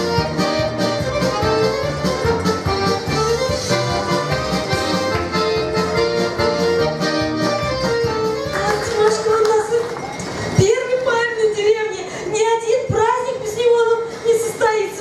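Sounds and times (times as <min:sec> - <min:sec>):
button accordion folk tune: 0:00.0 - 0:09.0.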